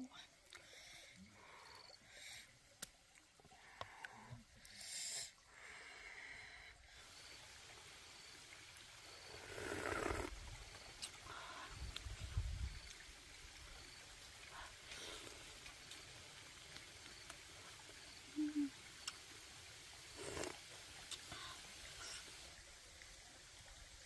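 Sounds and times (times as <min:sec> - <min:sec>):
person slurping soup: 0:09.4 - 0:10.3, 0:20.2 - 0:20.6
quiet eating sounds: 0:14.2 - 0:22.5.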